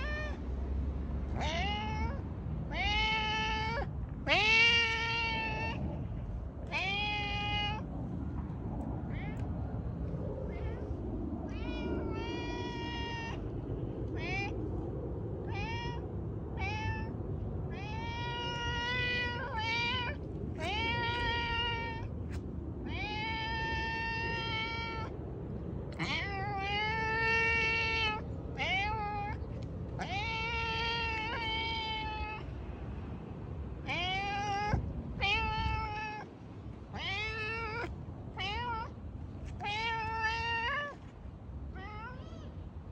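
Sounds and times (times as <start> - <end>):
cat meowing: 0.0 - 0.4, 1.3 - 6.0, 6.6 - 7.9, 10.4 - 13.5, 14.1 - 14.6, 15.4 - 22.1, 22.8 - 25.1, 25.9 - 32.5, 33.8 - 36.3, 36.9 - 41.1, 41.7 - 42.6.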